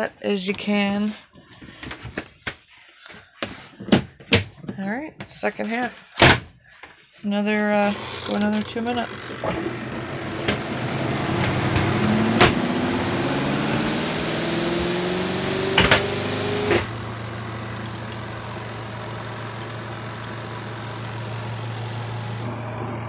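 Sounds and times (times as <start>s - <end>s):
washer spin motor whining: 7.8s - 23.0s.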